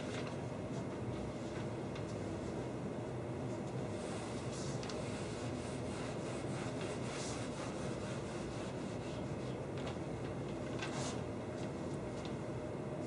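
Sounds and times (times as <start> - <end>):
low room hum: 0.0 - 13.0
eraser scrubbing whiteboard: 4.0 - 9.6.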